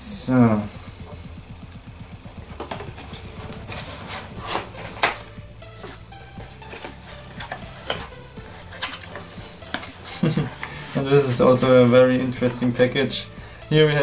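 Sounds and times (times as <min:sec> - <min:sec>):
quiet background music: 0:00.0 - 0:14.0
cardboard flaps scraping and clicking: 0:02.6 - 0:10.4.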